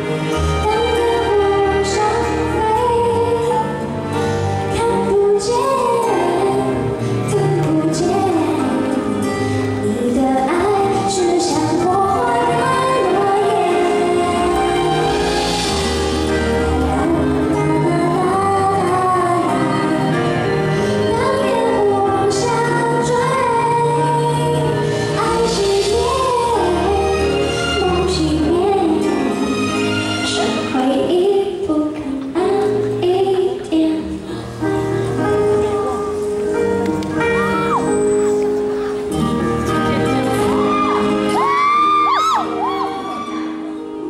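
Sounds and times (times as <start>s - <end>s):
woman singing into a microphone: 0.0s - 37.9s, 39.1s - 44.0s
instrumental backing track: 0.0s - 44.0s.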